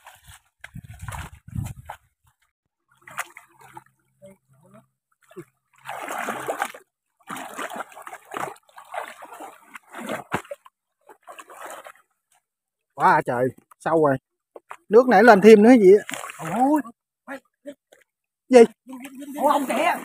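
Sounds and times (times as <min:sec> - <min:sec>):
water splashing and sloshing: 0:00.0 - 0:12.6, 0:14.6 - 0:16.8, 0:18.9 - 0:20.0.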